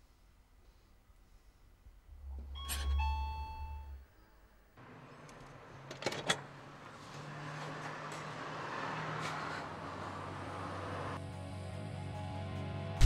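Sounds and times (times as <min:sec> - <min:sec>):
two-note doorbell chime: 0:02.6 - 0:04.0.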